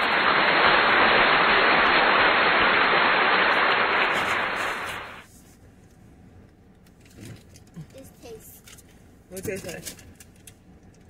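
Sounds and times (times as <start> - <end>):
loud steady static hiss: 0.0 - 7.2.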